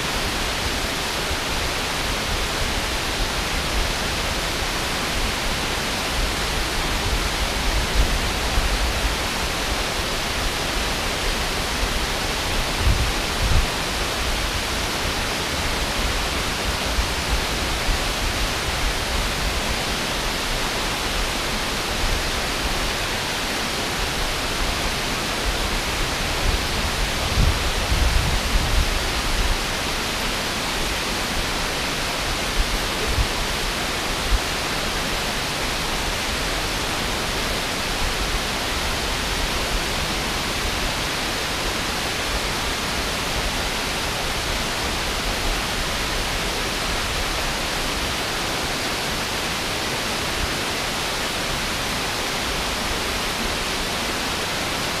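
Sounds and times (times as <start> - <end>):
waterfall and rapids rushing: 0.0 - 55.0.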